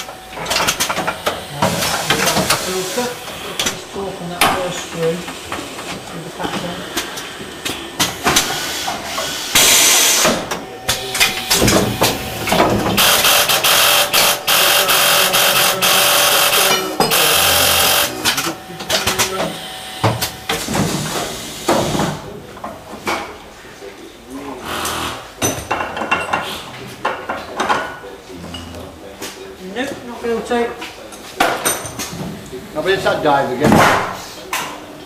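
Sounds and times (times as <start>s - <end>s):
machine actuators clicking and knocking: 0.0s - 3.8s, 4.4s - 23.2s
compressed-air hiss: 0.9s - 11.4s, 12.0s - 18.4s, 20.9s - 22.2s.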